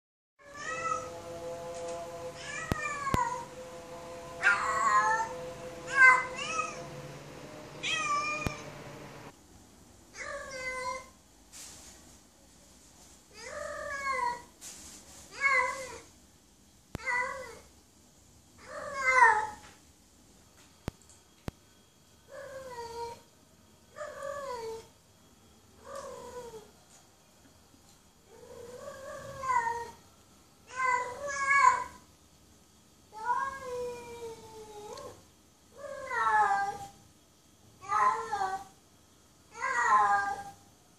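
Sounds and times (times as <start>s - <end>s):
cat meowing: 0.4s - 1.1s, 2.4s - 3.4s, 4.4s - 9.0s, 28.3s - 30.0s
cat howling meows: 0.4s - 9.0s, 18.6s - 19.6s, 24.0s - 24.9s, 25.8s - 26.7s, 28.3s - 30.0s, 30.7s - 32.0s, 35.8s - 37.0s, 37.8s - 38.7s, 39.5s - 40.6s.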